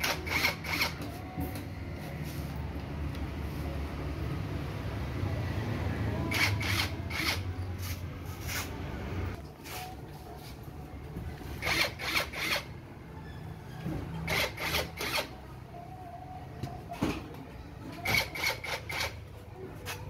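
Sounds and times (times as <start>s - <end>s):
cordless drill whirring: 0.0s - 0.9s, 6.3s - 7.4s, 11.6s - 12.7s.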